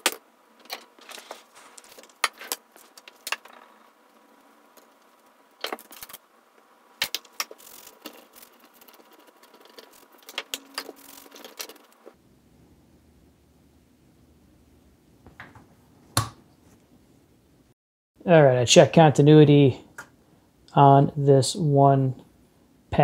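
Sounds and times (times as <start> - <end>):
paper towel rustling: 1.0 - 3.6.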